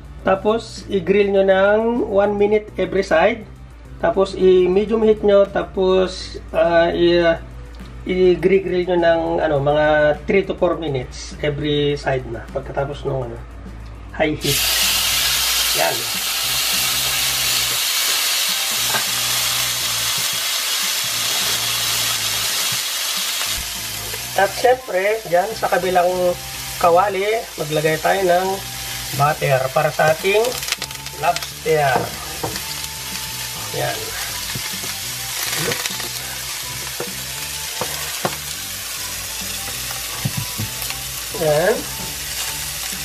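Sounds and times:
steak sizzling in a frying pan: 14.4s - 43.0s.

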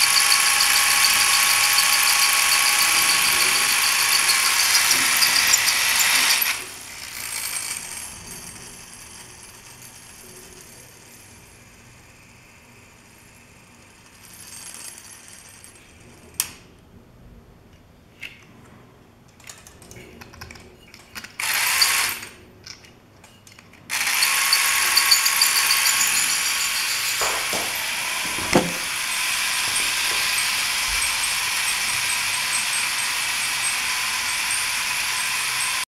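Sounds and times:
small electric motor whirring: 0.0s - 8.0s, 23.9s - 35.9s.

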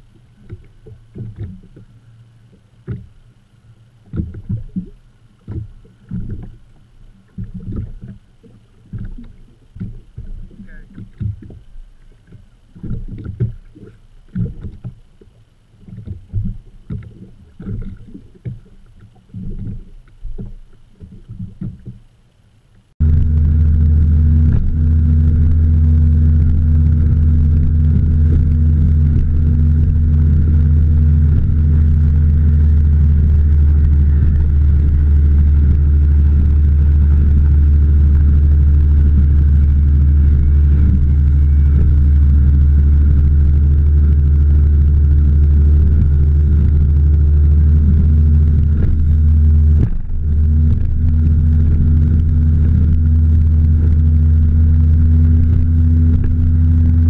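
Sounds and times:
boat engine drone: 0.0s - 57.0s
low buffeting: 0.0s - 57.0s
water rushing past hull: 0.0s - 57.0s
wind on microphone: 23.0s - 57.0s.

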